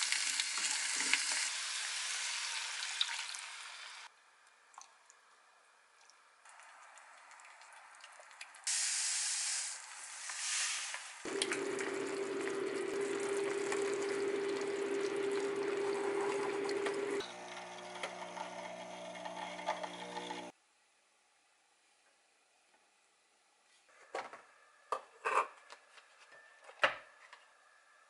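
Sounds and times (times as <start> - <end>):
broth hissing and bubbling in a pan: 0.0 - 4.1, 8.6 - 17.2
coffee machine pump buzzing: 11.3 - 20.5.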